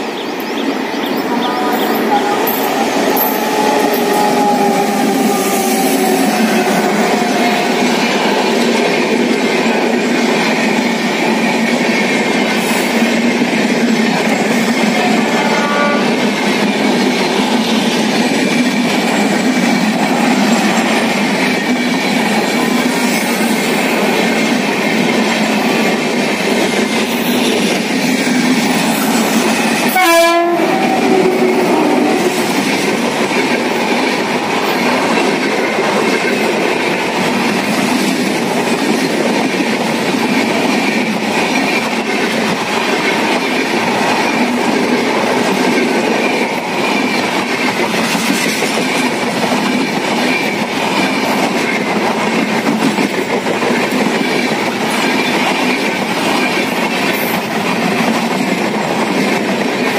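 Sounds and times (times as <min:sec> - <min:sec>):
train wheels rushing on rails: 0:00.0 - 0:59.9
train horn blast: 0:01.4 - 0:02.6, 0:15.0 - 0:16.2, 0:29.9 - 0:32.4.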